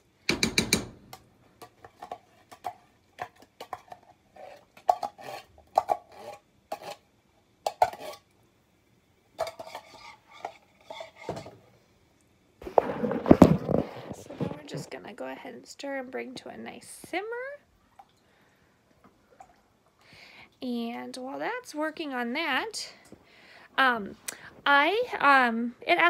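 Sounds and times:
spoon scraping cookware: 1.6 - 7.0, 7.7 - 8.3, 9.4 - 11.6.

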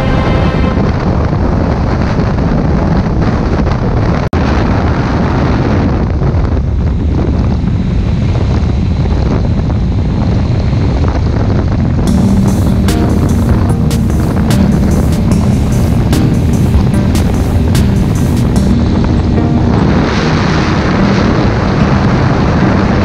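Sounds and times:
heavy wind noise on microphone: 0.0 - 23.0.

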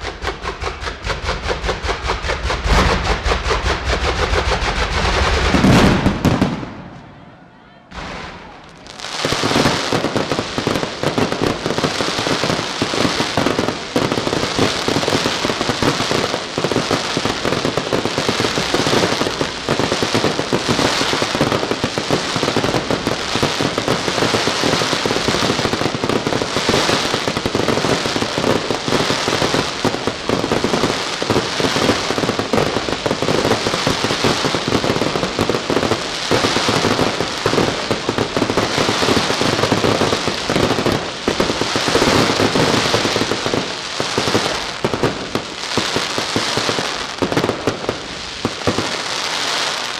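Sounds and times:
fireworks crackling and popping: 0.0 - 7.2, 7.9 - 49.9.

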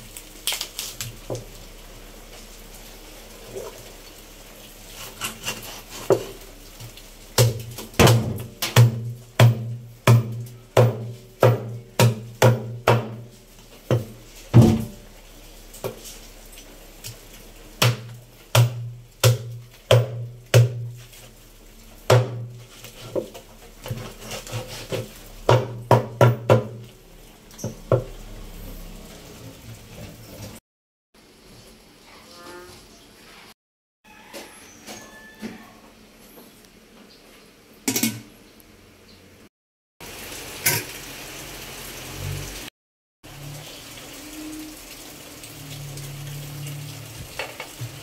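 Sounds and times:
cleaver chopping on wooden board: 7.4 - 13.2, 17.8 - 20.9.

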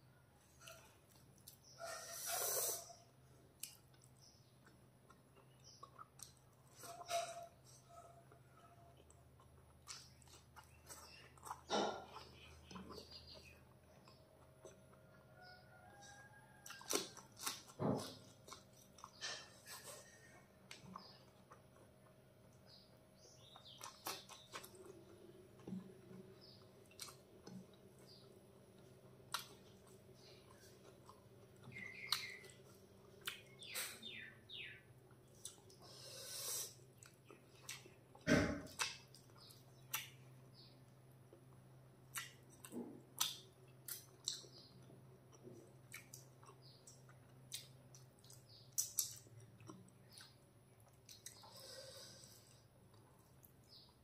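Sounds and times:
wet chewing and lip smacks: 29.3 - 34.0, 36.9 - 40.7, 41.4 - 51.5.

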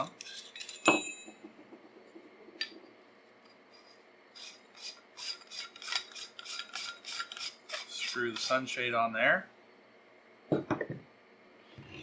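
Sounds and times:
threads scraping while screwing: 2.6 - 8.7.

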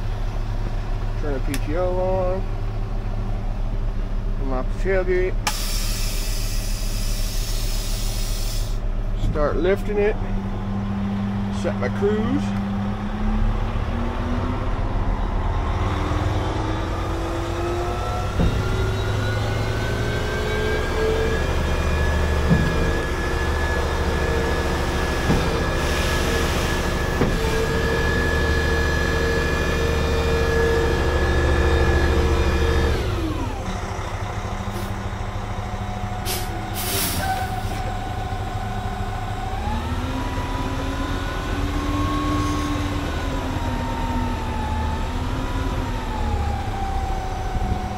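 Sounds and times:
diesel truck engine revving: 0.0 - 47.9
short air hisses: 5.5 - 8.8, 36.3 - 37.5.

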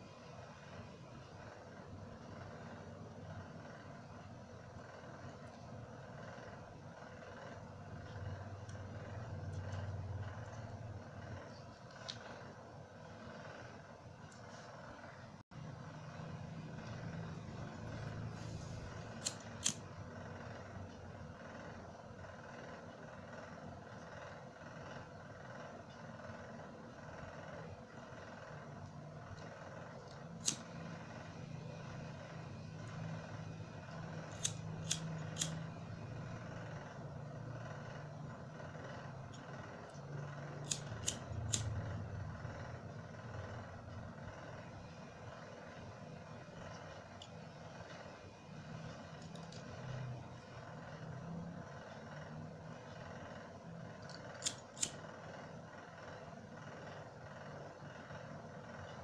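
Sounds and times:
steady low hum: 0.0 - 59.0
lighter being struck: 19.1 - 19.8, 30.4 - 30.7, 34.3 - 35.7, 40.6 - 41.8, 54.4 - 55.0.

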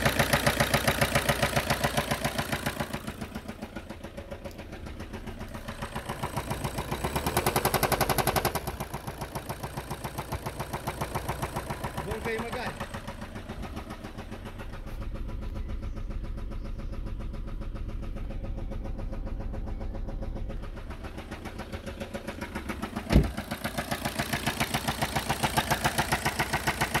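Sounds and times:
diesel engine idling with knock: 0.0 - 27.0
sharp thump: 23.1 - 23.4.

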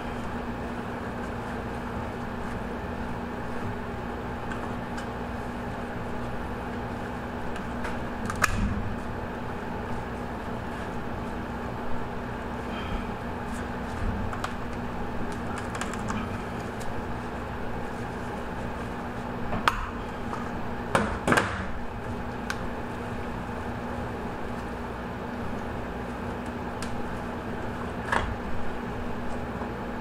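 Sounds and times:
steady room hum: 0.0 - 30.0.

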